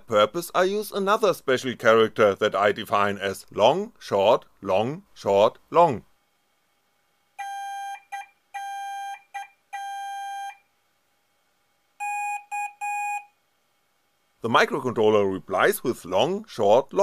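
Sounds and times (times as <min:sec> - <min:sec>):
morse code beeps: 0:07.4 - 0:10.6, 0:12.0 - 0:13.3.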